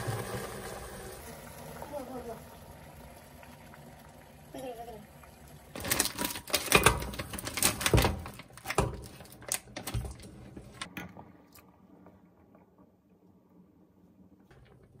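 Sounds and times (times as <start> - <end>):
plastic bag rustling and crackling: 5.8 - 10.9.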